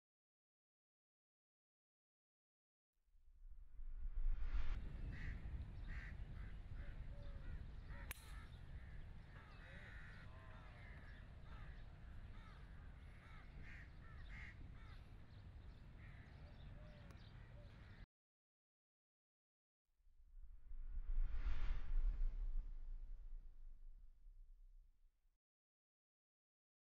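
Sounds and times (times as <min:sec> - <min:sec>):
birds calling: 0:05.0 - 0:18.0.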